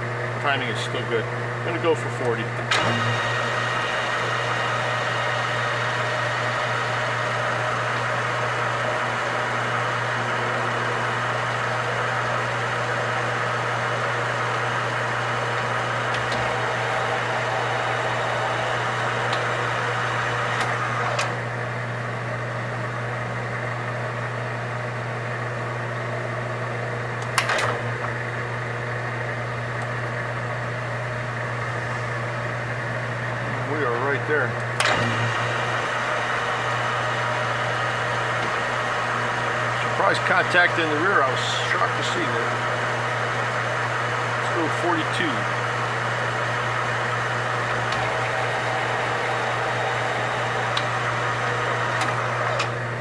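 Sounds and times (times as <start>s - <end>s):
metal lathe running: 0.1s - 21.5s, 31.4s - 53.0s
lathe stopping click: 2.7s - 4.6s, 47.6s - 52.8s.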